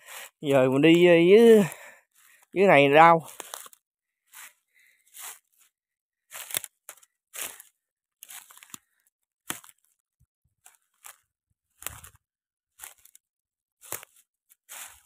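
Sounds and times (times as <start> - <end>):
footsteps crunching dry twigs: 0.1 - 10.0, 10.6 - 15.0.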